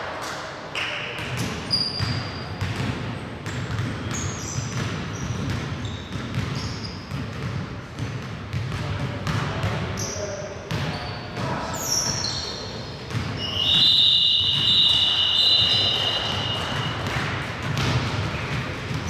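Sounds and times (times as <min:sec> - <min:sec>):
sneakers squeaking: 0:00.8 - 0:19.0
basketball bouncing on wooden floor: 0:01.2 - 0:09.8, 0:15.6 - 0:19.0.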